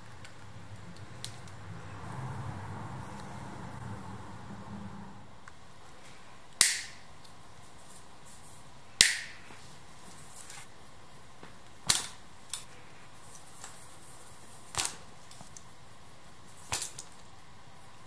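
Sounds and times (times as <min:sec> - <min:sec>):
sharp snapping clicks: 0:06.6 - 0:07.4, 0:09.0 - 0:09.4.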